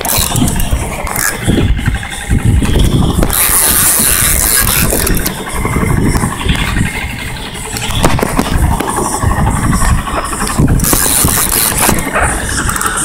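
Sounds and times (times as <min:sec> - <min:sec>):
wind: 0:00.0 - 0:13.0.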